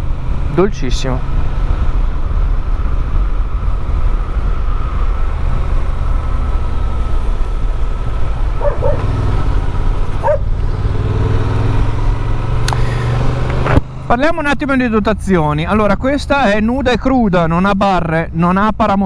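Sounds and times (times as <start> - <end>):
motorcycle engine running: 0.0 - 15.0
dog barking: 8.6 - 9.1, 10.2 - 10.5.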